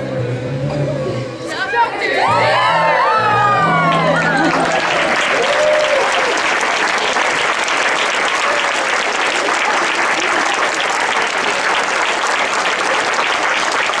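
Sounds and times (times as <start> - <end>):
audience applauding: 3.0 - 14.0.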